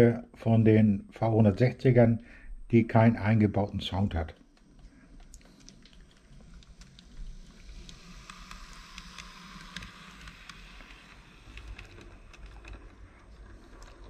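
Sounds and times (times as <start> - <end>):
model train motor hiss: 7.2 - 12.3.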